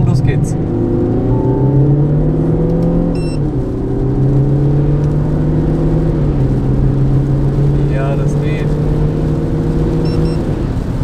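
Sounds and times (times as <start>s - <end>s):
car engine accelerating: 0.0s - 11.0s
short electronic beep: 1.3s - 2.3s, 3.2s - 3.4s, 10.1s - 10.4s.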